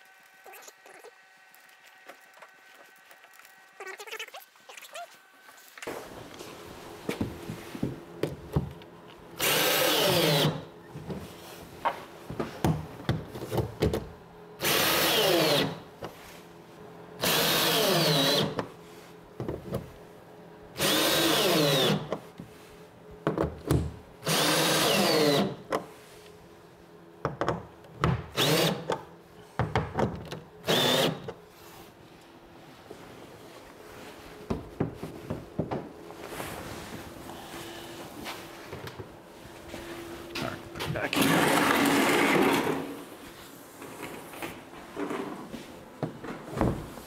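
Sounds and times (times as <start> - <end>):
cordless drill driving bolts: 9.4 - 10.6, 14.6 - 15.8, 17.2 - 18.6, 20.8 - 22.1, 24.2 - 25.6, 28.4 - 28.9, 30.6 - 31.3.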